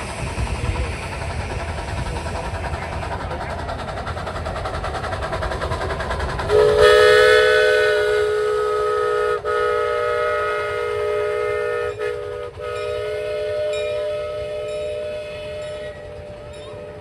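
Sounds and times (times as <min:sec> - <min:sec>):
steam locomotive rhythmic beat: 0:00.0 - 0:17.0
steam chime whistle blast: 0:06.5 - 0:17.0.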